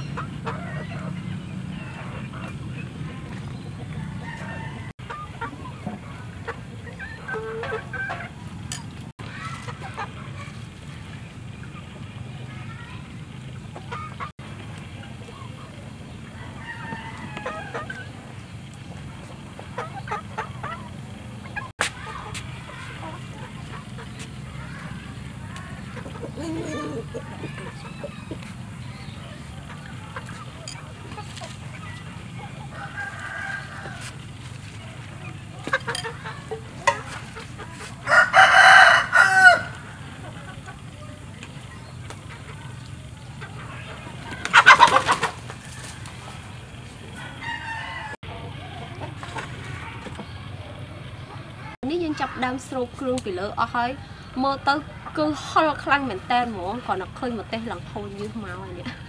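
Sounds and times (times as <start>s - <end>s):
chickens clucking: 0.0s - 59.0s
rooster crowing: 4.0s - 5.0s, 16.4s - 18.1s, 32.7s - 34.1s, 38.0s - 40.0s, 47.2s - 48.7s.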